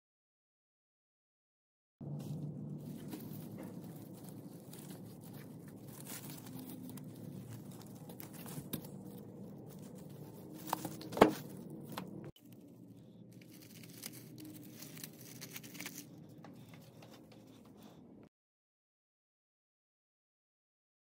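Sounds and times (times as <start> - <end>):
plastic leaves rustling: 2.0 - 17.3
low room hum: 2.0 - 18.3.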